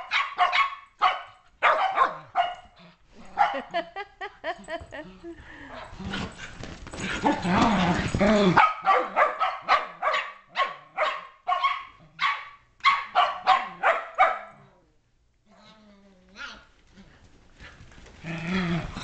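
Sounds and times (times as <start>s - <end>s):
dog barking sharply: 0.0s - 2.6s, 8.6s - 14.5s
dogs growling at play: 2.6s - 3.8s, 4.5s - 8.6s, 14.5s - 19.0s.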